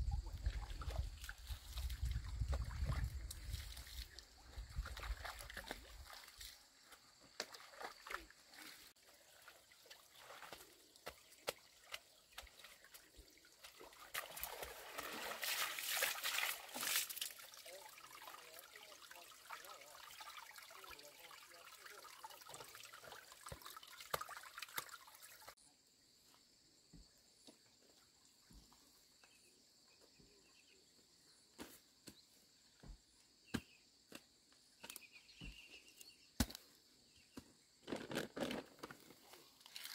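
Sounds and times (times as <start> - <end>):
water trickling and sloshing: 0.0 - 25.6
water splashing: 0.3 - 6.6, 7.3 - 25.6.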